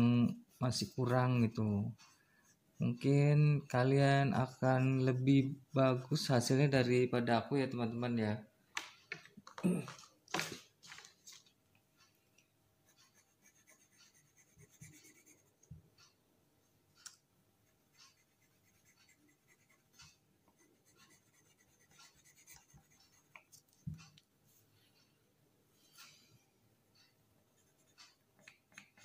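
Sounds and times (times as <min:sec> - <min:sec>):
pencil scratching on paper: 0:00.7 - 0:06.0, 0:12.8 - 0:15.7, 0:17.6 - 0:24.1, 0:27.4 - 0:29.0.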